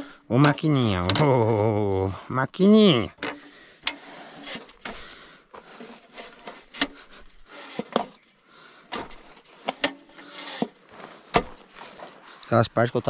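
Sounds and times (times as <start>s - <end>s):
rustling: 2.9s - 13.0s.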